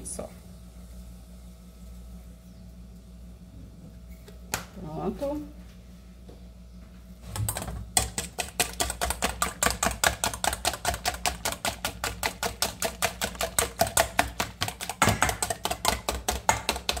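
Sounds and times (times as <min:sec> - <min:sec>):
whisk beating eggs in metal bowl: 0:07.4 - 0:17.0.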